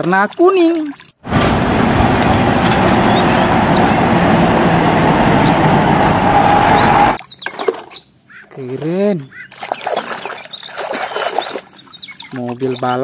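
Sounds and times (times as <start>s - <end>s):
bus engine and road rumble: 1.2s - 7.2s.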